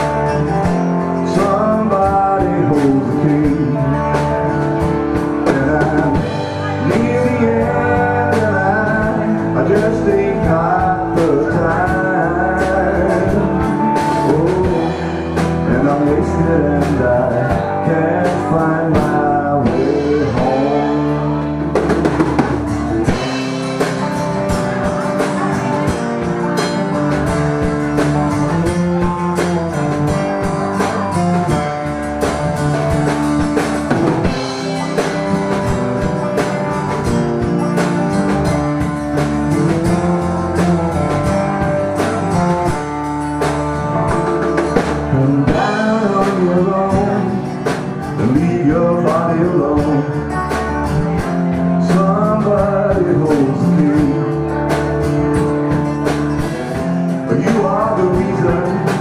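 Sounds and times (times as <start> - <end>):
person singing: 0.0 - 32.0, 33.6 - 37.2, 38.3 - 59.0
acoustic guitar: 0.0 - 59.0
drum kit: 0.0 - 59.0
electric guitar: 0.0 - 59.0.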